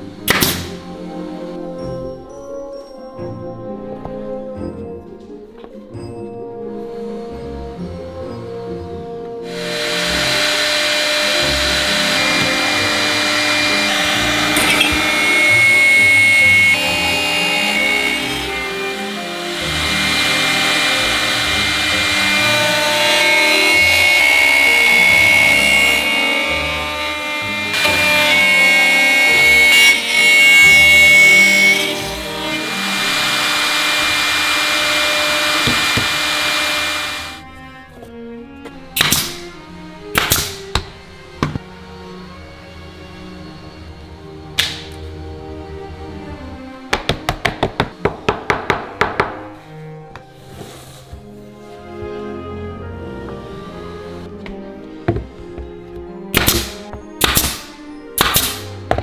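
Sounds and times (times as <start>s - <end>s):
soft background music: 0.0s - 36.6s, 37.4s - 59.0s
router whining cutting wood: 9.4s - 37.6s.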